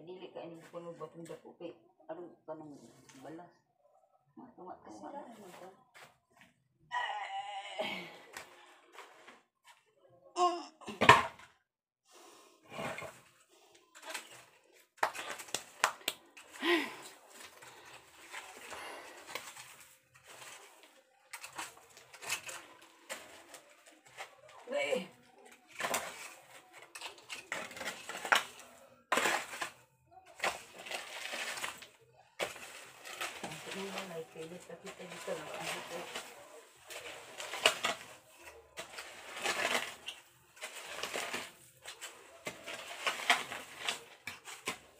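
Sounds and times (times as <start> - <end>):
shovel scraping soil and rubble: 12.6 - 44.9
stones clicking: 15.0 - 18.7.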